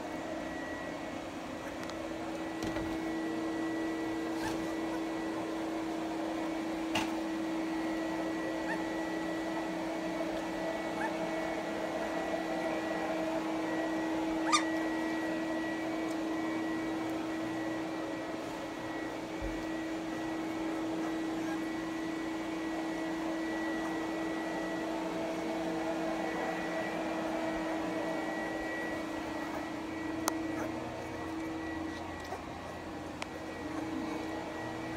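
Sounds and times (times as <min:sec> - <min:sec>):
steady machine hum: 0:00.0 - 0:34.9.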